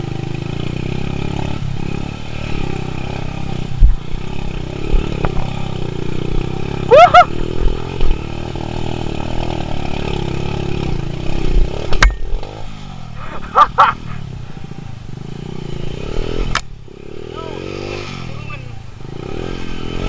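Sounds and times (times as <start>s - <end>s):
motorcycle engine under load: 0.0s - 20.0s
short high yelps: 6.9s - 7.4s.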